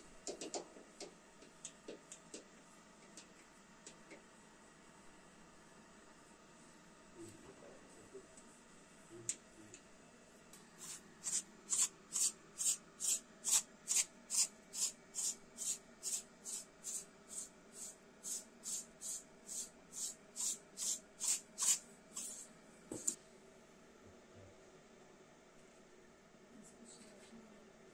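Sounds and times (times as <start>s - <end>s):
pastry brush strokes: 10.8s - 23.1s.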